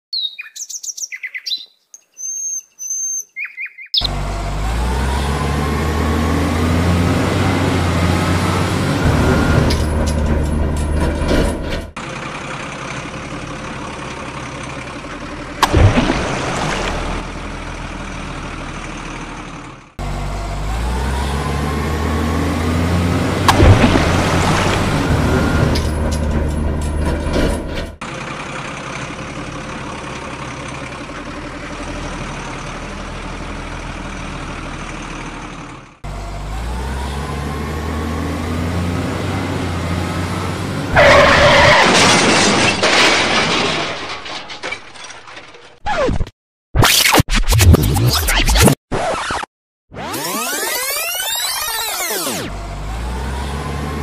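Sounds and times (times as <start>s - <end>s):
short chirping tones: 0.1s - 4.1s
truck engine running: 4.0s - 42.4s, 50.2s - 54.0s.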